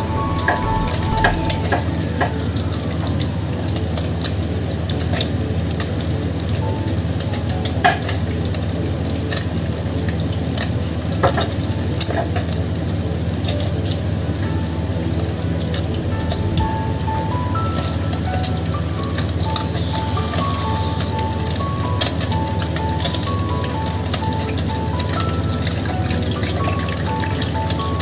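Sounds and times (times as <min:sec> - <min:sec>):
steady low hum: 0:00.0 - 0:05.5
oil sizzling and crackling in a wok: 0:02.0 - 0:28.0.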